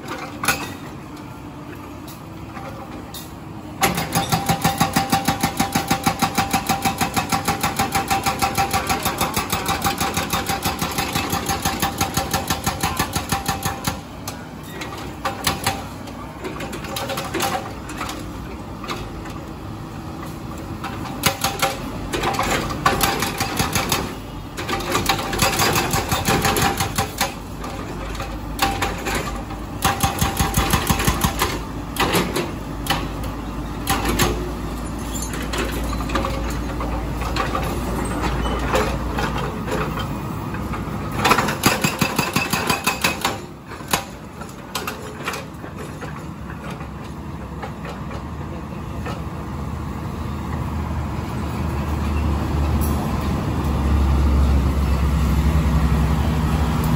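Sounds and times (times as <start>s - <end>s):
hydraulic breaker hammering concrete: 3.8s - 14.1s, 21.2s - 27.4s, 28.6s - 33.2s, 41.2s - 44.2s
diesel engine running: 43.2s - 56.9s.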